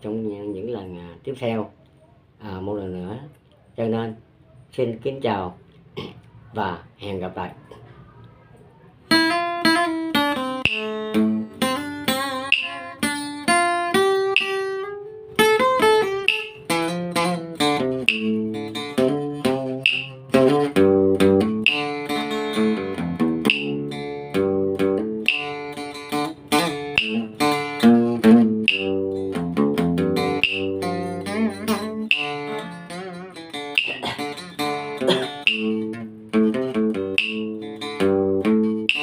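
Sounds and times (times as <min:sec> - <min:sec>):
acoustic guitar melody: 0:09.1 - 0:39.0.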